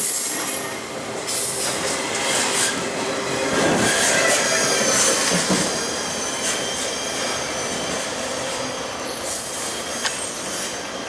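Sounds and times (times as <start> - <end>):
freight train rolling: 0.0 - 11.0
wheel squeal: 3.8 - 8.2.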